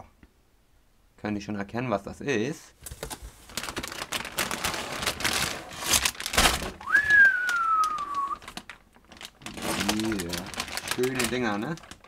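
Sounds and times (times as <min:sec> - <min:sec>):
plastic bags crinkling: 0:02.8 - 0:12.0
sliding whistled note: 0:06.8 - 0:08.4.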